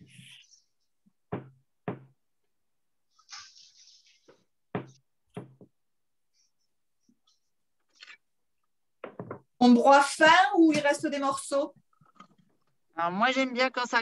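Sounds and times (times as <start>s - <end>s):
objects knocking on wooden table: 1.3s - 2.2s, 4.7s - 5.8s, 9.0s - 9.6s.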